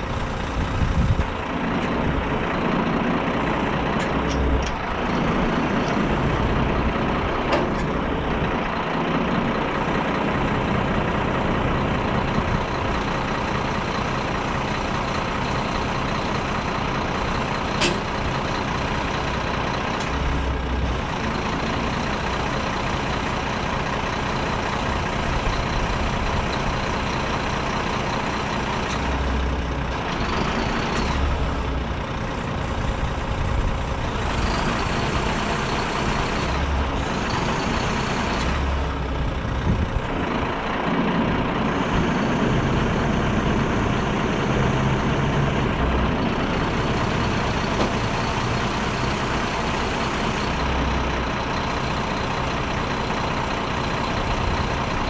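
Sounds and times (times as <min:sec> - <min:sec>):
diesel truck engine running: 0:00.0 - 0:55.0
hydraulic crane working: 0:00.0 - 0:55.0.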